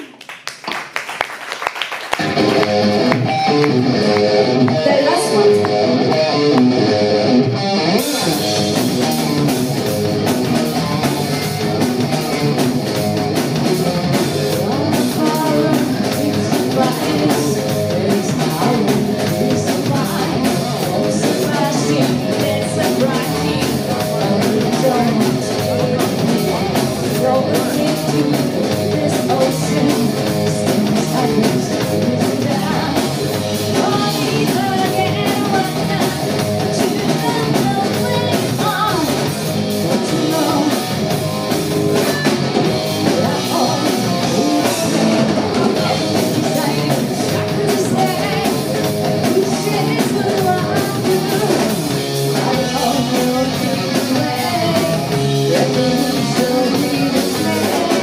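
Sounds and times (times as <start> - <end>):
rock band playing: 0.6 - 58.0
woman singing: 4.7 - 5.8, 14.0 - 41.0, 43.0 - 58.0.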